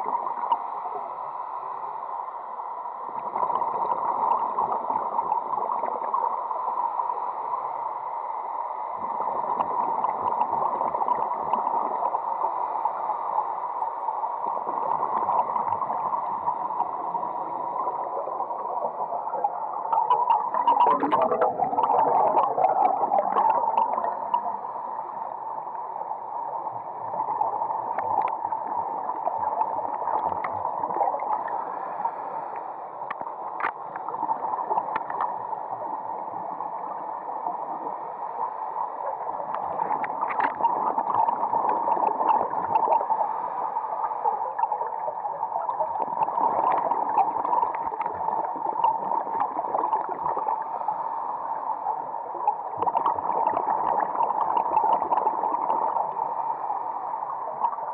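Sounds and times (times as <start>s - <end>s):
underwater clicks and ticks: 0.0s - 1.1s, 3.1s - 7.4s, 8.8s - 25.8s, 26.5s - 57.9s
muffled underwater hiss: 0.0s - 57.9s
gurgling bubbles: 14.4s - 24.6s, 26.8s - 32.3s, 39.1s - 43.3s, 44.1s - 50.8s, 52.3s - 56.7s.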